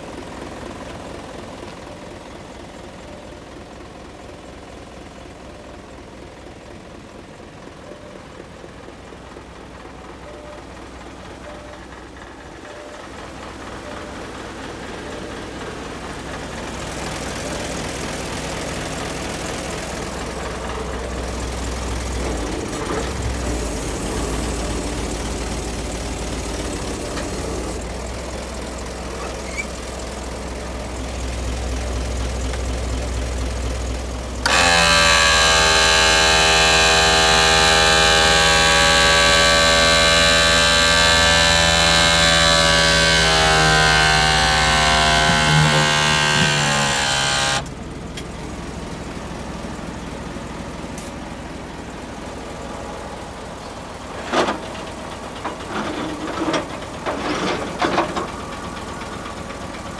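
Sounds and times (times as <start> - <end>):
diesel truck engine idling: 0.0 - 59.9
loud high whine: 34.4 - 47.8.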